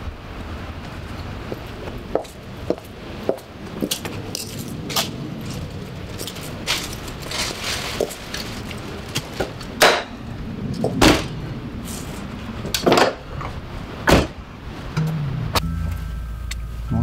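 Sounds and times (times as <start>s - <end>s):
car doors opening and shutting: 12.8s - 14.4s
car tailgate slamming: 14.1s - 14.4s.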